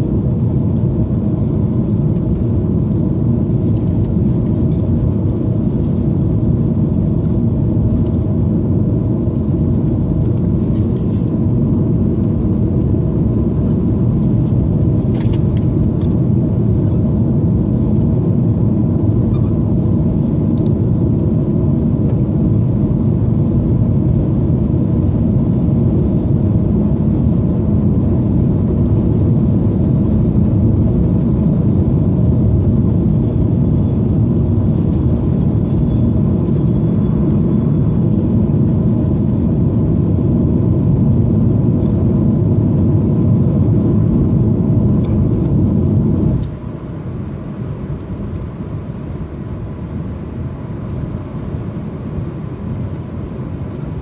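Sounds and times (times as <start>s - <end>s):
car road and engine rumble: 0.0s - 54.0s.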